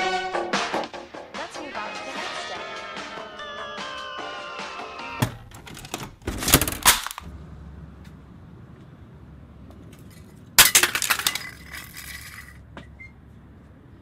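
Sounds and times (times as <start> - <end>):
pieces clattering: 5.5 - 7.3, 10.0 - 12.6
piece ringing and rattling: 10.0 - 12.6
objects smashing on concrete: 10.6 - 12.6.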